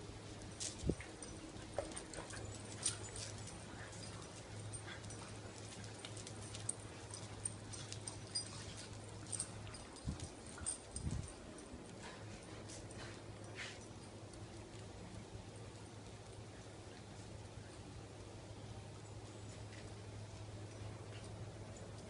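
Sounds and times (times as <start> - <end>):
steady low hum: 0.0 - 22.0
dogs scuffling: 0.2 - 17.4.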